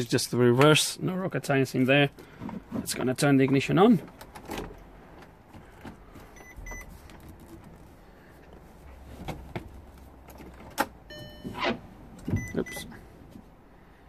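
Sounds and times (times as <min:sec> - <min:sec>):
short high beeps: 0:11.1 - 0:11.6.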